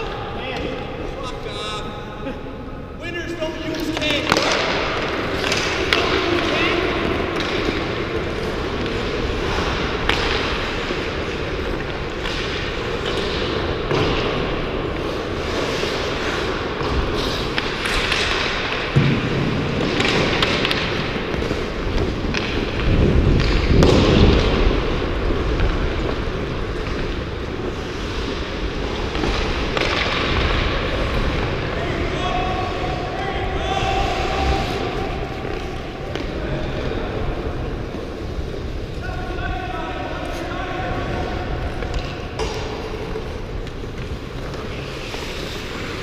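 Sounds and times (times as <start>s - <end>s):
hockey sticks knocking puck: 3.6s - 39.4s, 40.1s - 46.0s
skate blades scraping ice: 3.7s - 19.0s, 19.7s - 31.6s, 41.7s - 46.0s.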